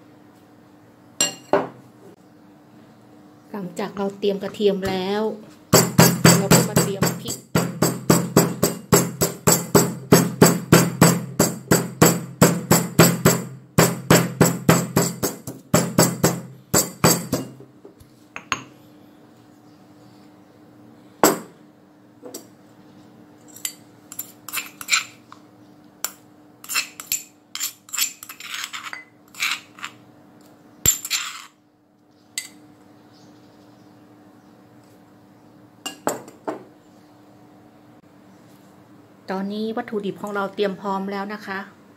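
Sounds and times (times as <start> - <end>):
stone pestle pounding in mortar: 5.8 - 17.6
spoon scraping a stone mortar: 23.6 - 25.4, 26.1 - 30.0, 30.9 - 31.6.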